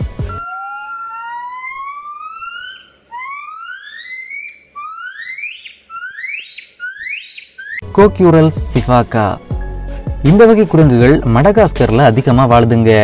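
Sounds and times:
gibbon whistle-like calls: 0.3 - 7.8.

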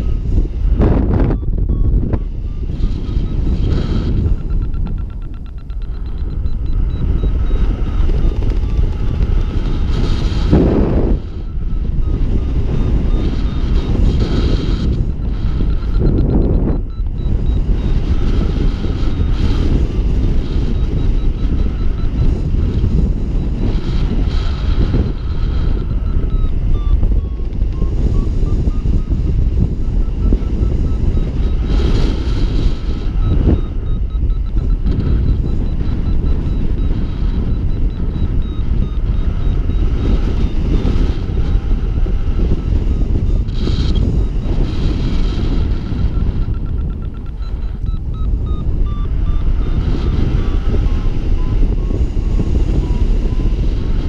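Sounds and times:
high variometer beeps: 0.0 - 54.0
wind rumble on microphone: 0.0 - 54.0.

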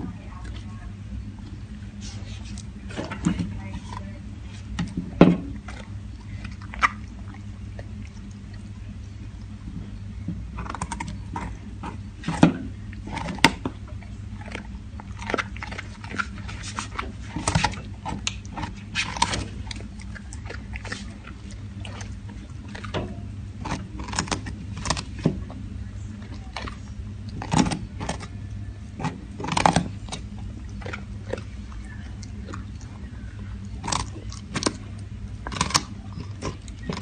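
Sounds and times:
dog crunching a carrot: 1.4 - 37.0.

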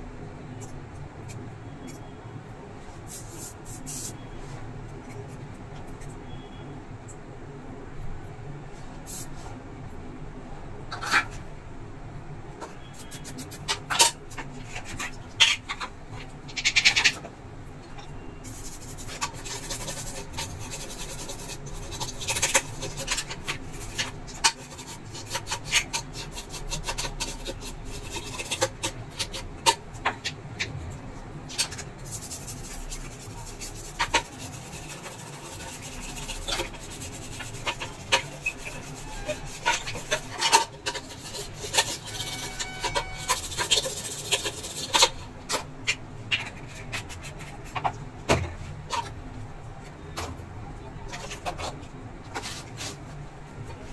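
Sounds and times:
toothbrush scrubbing circuit board: 3.0 - 4.4, 12.8 - 17.2, 17.9 - 47.8.

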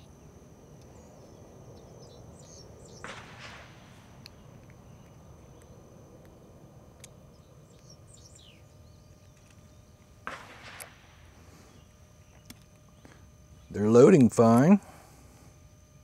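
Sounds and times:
bird chirp: 0.0 - 3.2, 4.2 - 10.1, 11.6 - 13.8
insect drone: 0.0 - 16.0
rustle and clatter of handling: 9.1 - 10.1.

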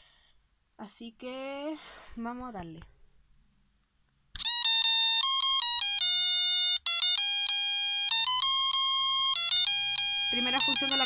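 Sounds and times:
electronic beeping melody: 4.4 - 11.0.

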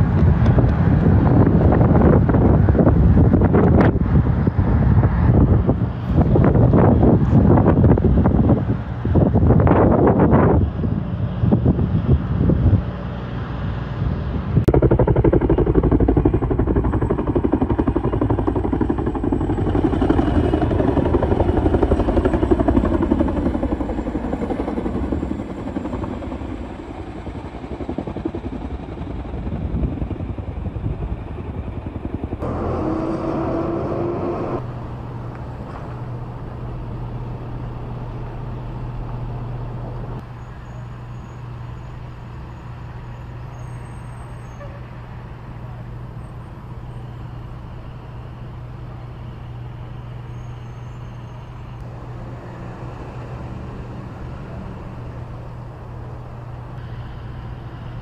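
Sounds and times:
wildfire rushing: 0.0 - 40.2
fire engine motor humming: 0.0 - 43.5, 44.1 - 58.0
helicopter chopping: 14.6 - 37.3.

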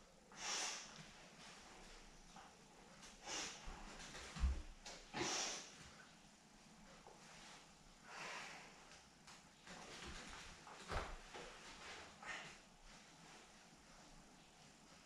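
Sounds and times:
sharp hissing exhalations: 0.3 - 0.9, 3.2 - 3.6, 5.2 - 5.8
bare feet thumping on mats: 3.7 - 5.2, 9.7 - 12.0.

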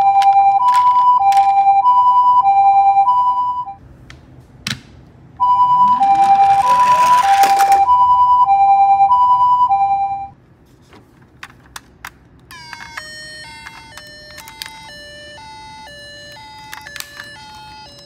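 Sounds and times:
toy two-tone siren: 0.0 - 3.8, 5.4 - 10.3, 12.5 - 18.0
toy wheels rattling down slope: 6.0 - 7.9.

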